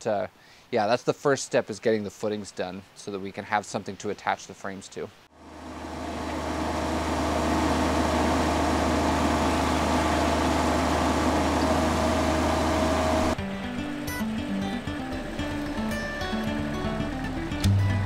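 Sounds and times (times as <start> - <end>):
loader engine running under load: 5.4 - 13.4.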